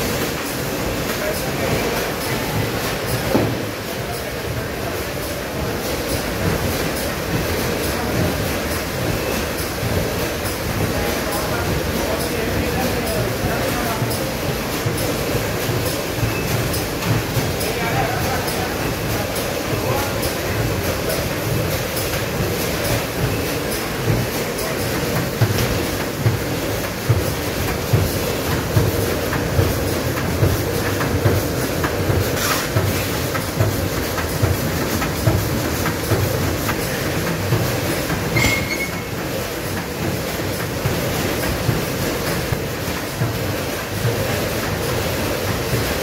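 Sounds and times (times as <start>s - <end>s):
packing machine clattering: 6.0s - 46.0s.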